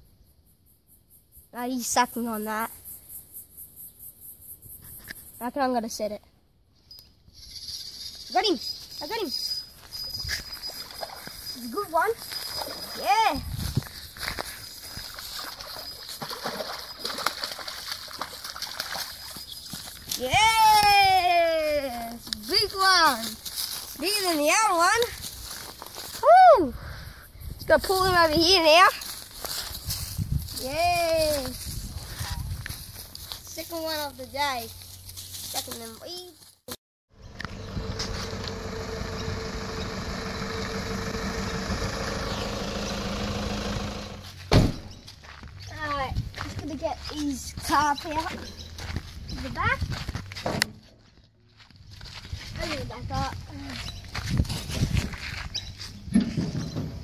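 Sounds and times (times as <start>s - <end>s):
fish splashing in water: 15.0s - 19.5s
vehicle engine running: 37.1s - 44.5s.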